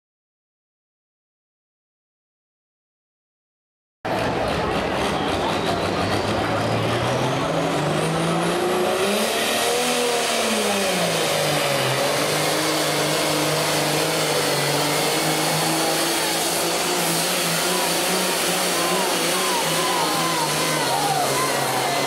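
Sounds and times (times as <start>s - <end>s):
tractor diesel engine under load: 4.1s - 22.0s.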